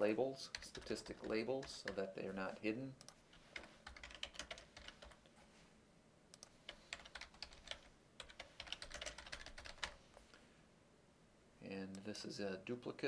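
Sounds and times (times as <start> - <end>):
typing on a keyboard: 0.5 - 2.0, 3.0 - 5.2, 6.4 - 10.0.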